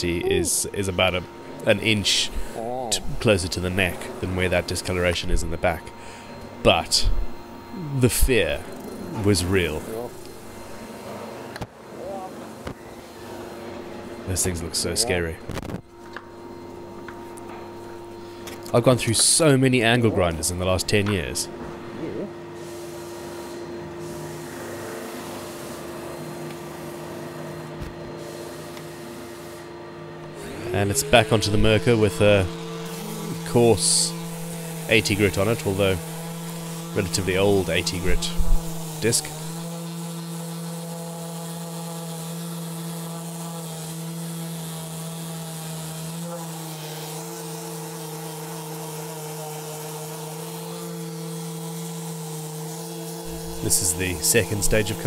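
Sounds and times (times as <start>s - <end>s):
orbital sander sanding wood: 0.0s - 11.1s, 22.4s - 55.0s
workshop machine humming: 0.0s - 55.0s.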